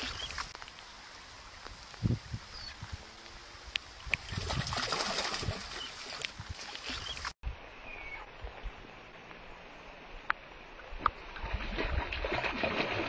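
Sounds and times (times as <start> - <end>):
water splashing and churning: 0.0 - 0.6, 4.0 - 7.4, 10.7 - 13.0.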